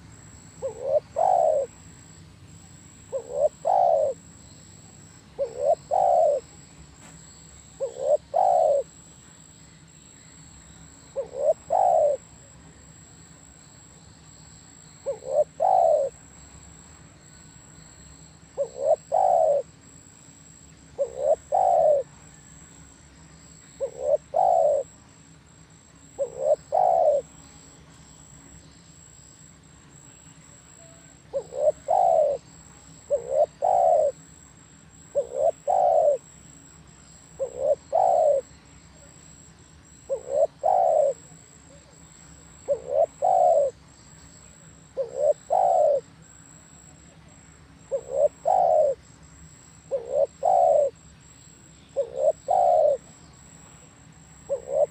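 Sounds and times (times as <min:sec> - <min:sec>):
dove cooing: 0:00.6 - 0:01.9, 0:03.0 - 0:04.3, 0:05.3 - 0:06.6, 0:07.7 - 0:09.0, 0:11.1 - 0:12.6, 0:15.0 - 0:16.2, 0:18.6 - 0:19.7, 0:21.0 - 0:22.5, 0:23.8 - 0:25.0, 0:26.0 - 0:27.4, 0:30.6 - 0:34.3, 0:34.9 - 0:36.4, 0:37.3 - 0:43.8, 0:44.5 - 0:46.1, 0:47.9 - 0:49.0, 0:49.9 - 0:51.0, 0:52.0 - 0:53.5, 0:54.4 - 0:54.9.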